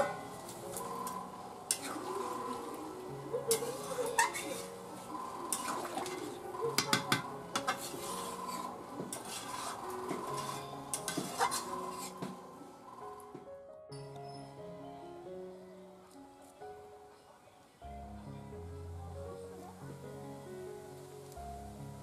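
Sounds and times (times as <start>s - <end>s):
metal spatula scraping iron pot: 0.0s - 2.7s, 3.5s - 12.4s.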